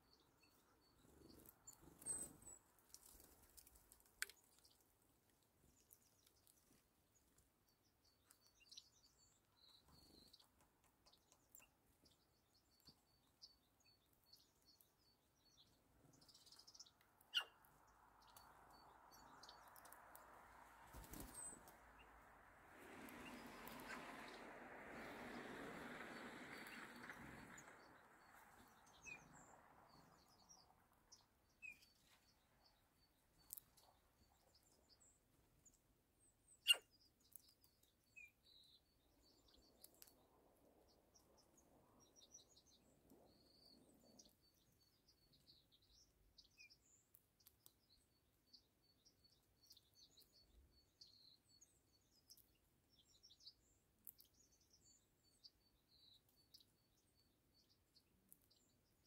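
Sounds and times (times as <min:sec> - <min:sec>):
small birds chirping: 0:00.0 - 0:59.0
soft rushing noise: 0:20.4 - 0:29.5.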